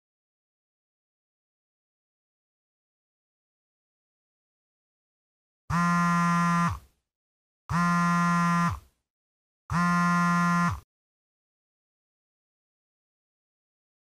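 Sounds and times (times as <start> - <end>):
mobile phone vibrating: 5.7 - 7.0, 7.7 - 9.0, 9.7 - 10.9.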